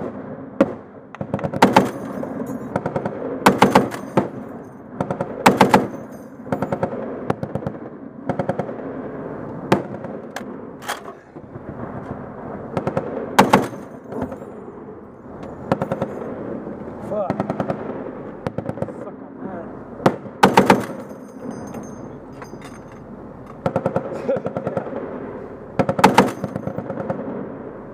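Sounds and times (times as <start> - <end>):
heavy machine gun firing bursts: 0.0 - 8.9, 12.7 - 14.4, 15.6 - 16.5, 17.3 - 19.0, 20.0 - 21.2, 23.6 - 25.2, 25.8 - 27.4.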